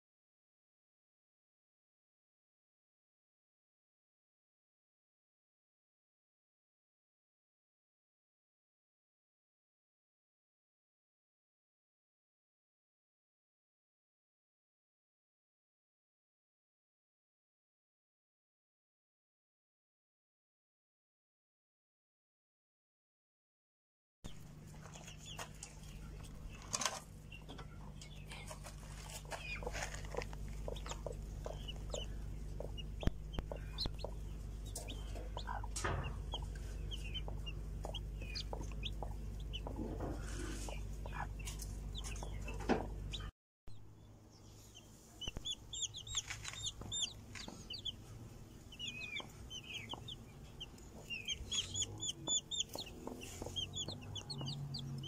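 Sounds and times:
steady low hum: 24.3s - 55.0s
chicks peeping: 24.7s - 43.3s, 44.3s - 55.0s
hen clucking: 24.8s - 43.3s, 45.2s - 55.0s.

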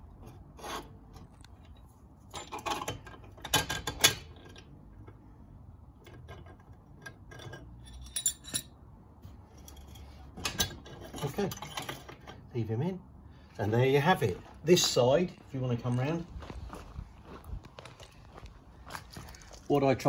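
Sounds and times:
metal scrapes and clinks: 6.1s - 8.8s, 9.4s - 12.5s.

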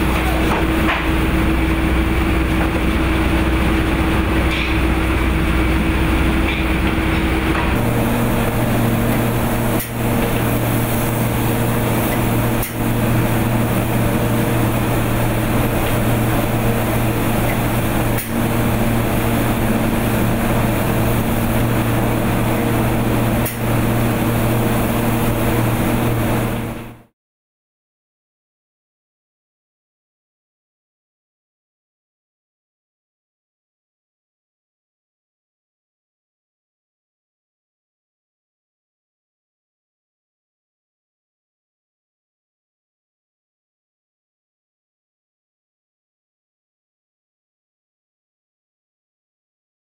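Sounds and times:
machine hum: 0.0s - 27.1s.

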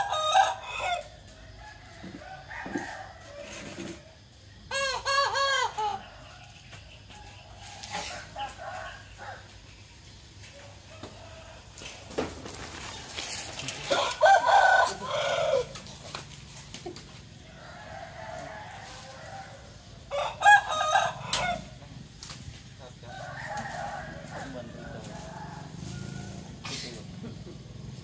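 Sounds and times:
rooster crowing: 0.0s - 3.9s, 13.2s - 15.9s, 17.5s - 21.8s, 23.0s - 26.6s.

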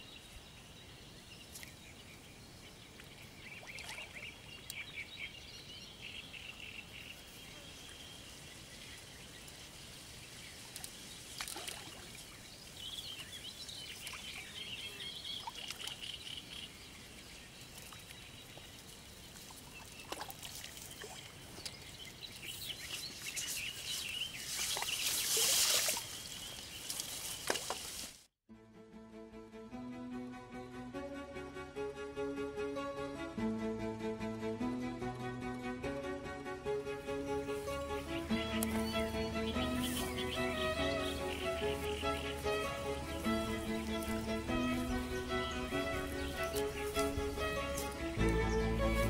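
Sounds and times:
birds singing: 0.0s - 27.6s, 37.5s - 49.0s
faint outdoor ambience: 0.0s - 28.2s, 30.1s - 49.0s
water splashing: 2.9s - 4.8s, 9.5s - 14.5s, 15.2s - 16.3s, 17.0s - 22.6s, 24.3s - 28.2s.

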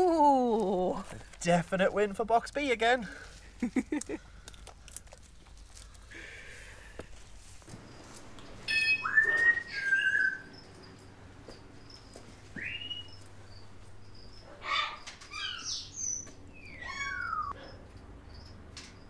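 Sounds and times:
macaw squawking and whistling: 8.7s - 10.6s, 12.6s - 13.2s, 14.6s - 17.6s.

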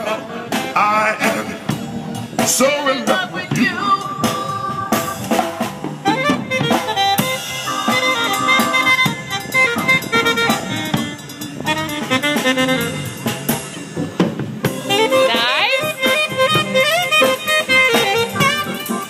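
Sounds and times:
drum kit beat: 0.0s - 19.0s
held melodic lines: 3.5s - 13.8s, 14.7s - 19.0s.

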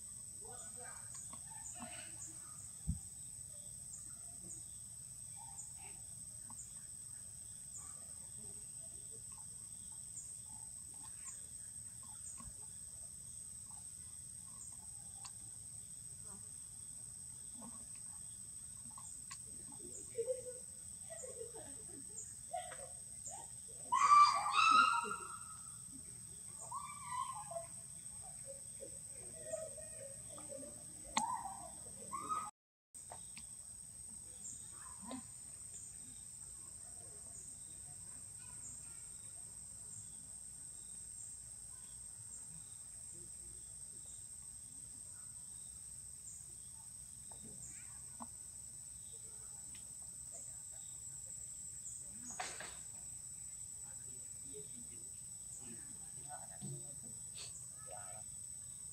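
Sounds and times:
faint ticks and chirps: 0.0s - 58.9s
insects droning: 0.0s - 58.9s
animal cries: 23.9s - 25.6s, 26.6s - 27.7s, 31.2s - 32.5s.

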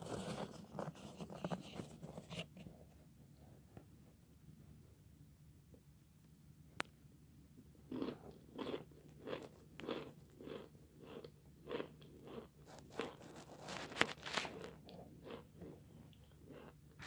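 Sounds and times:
chewing chalk crunches: 7.9s - 17.0s.

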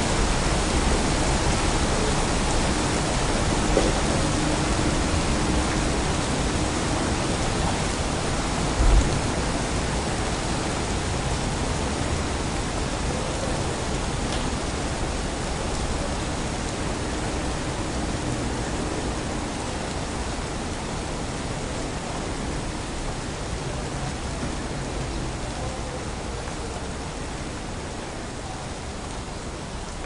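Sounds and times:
hiss of wet street: 0.0s - 30.0s
short low thump: 8.8s - 9.3s.

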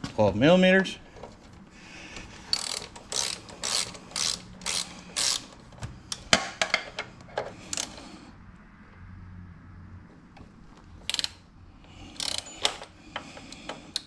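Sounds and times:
ratchet wrench clicking: 2.5s - 6.2s, 7.0s - 8.0s, 11.0s - 11.4s, 12.1s - 14.0s.

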